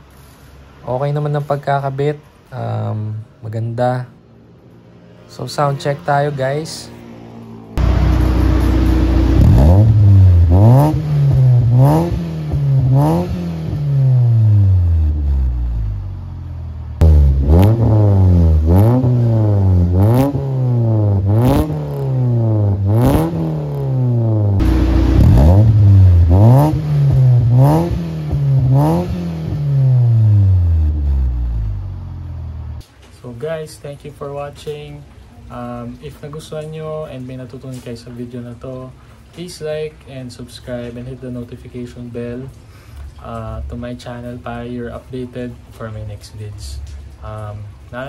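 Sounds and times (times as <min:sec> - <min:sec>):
car engine revving: 0:07.1 - 0:32.8.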